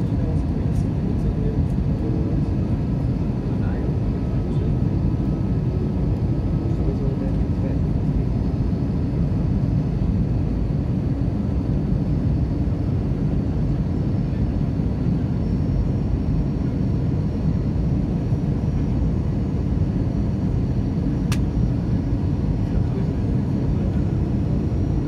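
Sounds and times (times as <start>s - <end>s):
airliner cabin engine noise: 0.0s - 25.0s
faint steady whine: 0.0s - 25.0s
sharp click: 21.3s - 21.5s.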